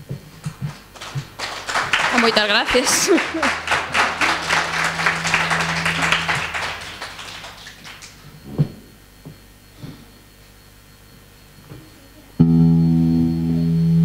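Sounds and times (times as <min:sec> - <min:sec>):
audience applauding: 0:00.4 - 0:08.3.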